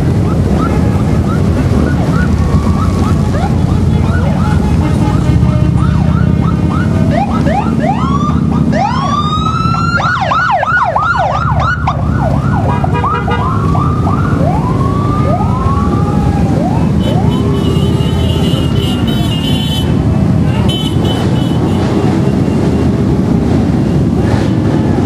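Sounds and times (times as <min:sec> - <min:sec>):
police siren whooping: 0:00.0 - 0:19.0
motorcycle engines rumbling: 0:00.0 - 0:25.0.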